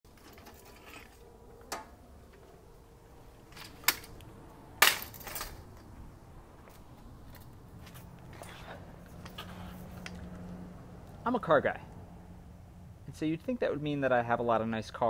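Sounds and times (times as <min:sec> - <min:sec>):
metal chair frame clacks: 0:04.8 - 0:05.7.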